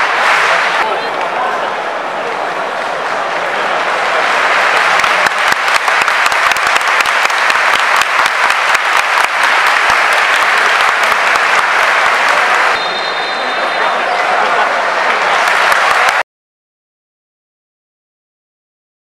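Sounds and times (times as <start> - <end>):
stadium crowd applauding: 0.0 - 16.2
close hand claps: 4.4 - 12.8, 15.0 - 16.2
referee's whistle: 12.8 - 14.2.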